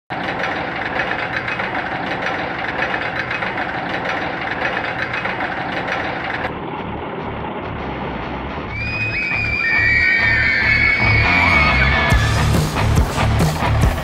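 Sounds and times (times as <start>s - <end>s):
roller coaster anti-rollback clicks: 0.1s - 6.7s
roller coaster train rattling: 0.1s - 14.0s.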